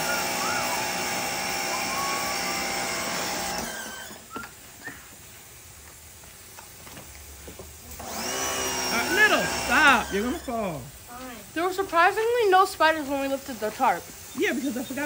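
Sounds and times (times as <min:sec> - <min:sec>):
pressure washer motor whining: 0:00.0 - 0:04.6, 0:07.9 - 0:11.0.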